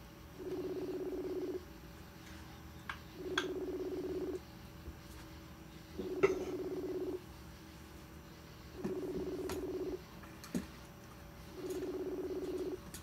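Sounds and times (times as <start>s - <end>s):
phone ringback tone: 0.4s - 1.6s, 3.2s - 4.4s, 6.0s - 7.2s, 8.8s - 10.0s, 11.5s - 12.8s.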